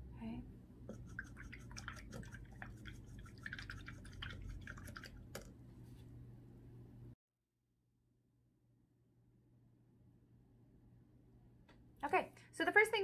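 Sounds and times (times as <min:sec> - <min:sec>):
light water drips: 0:00.9 - 0:05.5
paintbrush swishing in water: 0:00.9 - 0:06.1.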